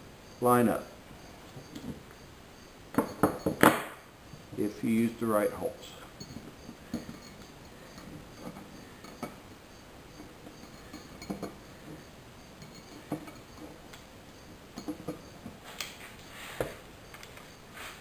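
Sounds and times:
metal plate clinking and knocking: 2.9 - 4.6, 5.9 - 15.6.

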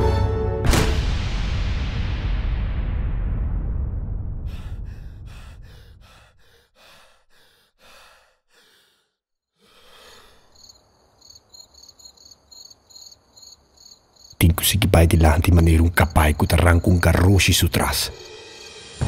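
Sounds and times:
deep music rumble: 0.6 - 6.4
quick breaths: 4.5 - 10.9
crickets chirping: 9.6 - 19.0.

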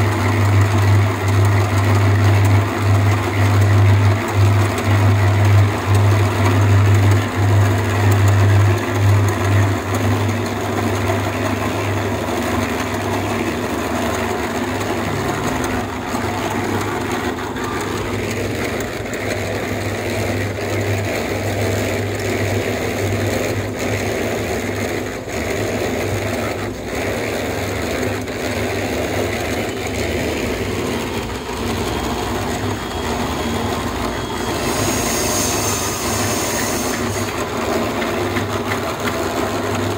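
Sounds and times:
construction machinery motor hum: 0.0 - 39.9.

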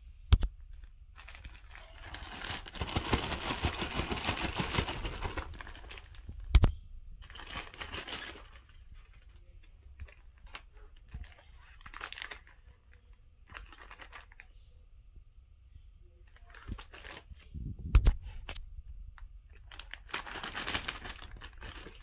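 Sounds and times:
plastic bag crinkling: 0.6 - 6.6, 7.2 - 14.6, 16.2 - 17.6, 19.5 - 22.0.

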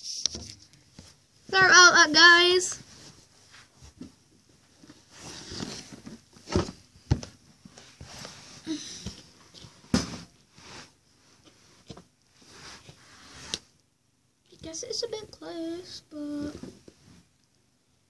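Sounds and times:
rustling: 0.0 - 13.8.

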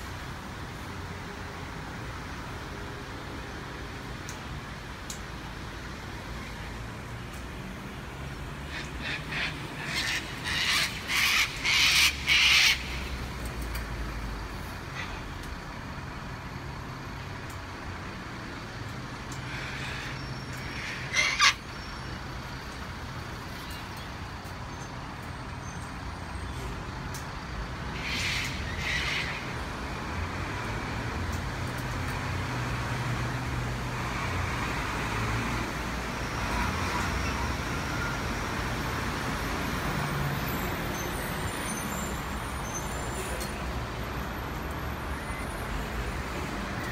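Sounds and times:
road traffic rumble: 0.0 - 46.9
cockatoos screeching: 8.7 - 13.0, 19.6 - 21.9.

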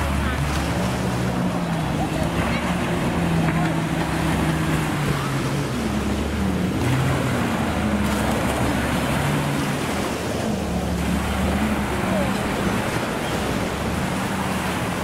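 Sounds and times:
waves washing onto sand: 0.0 - 15.0.

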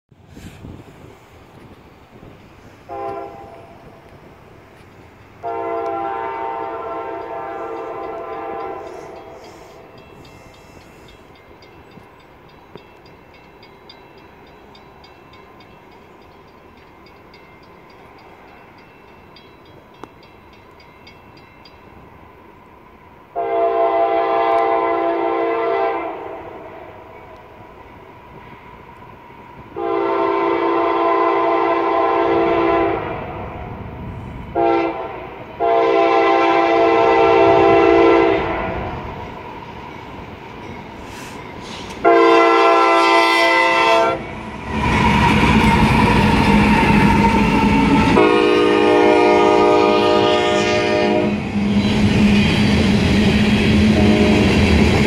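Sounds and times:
locomotive air horn blasts: 2.8 - 4.0, 5.4 - 10.8, 23.4 - 26.7, 29.8 - 33.2, 34.5 - 39.0, 42.0 - 44.3, 45.1 - 51.9, 53.9 - 54.6.

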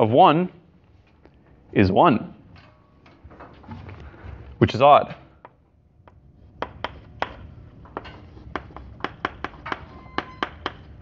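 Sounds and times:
chalk tapping on blackboard: 5.4 - 10.9.

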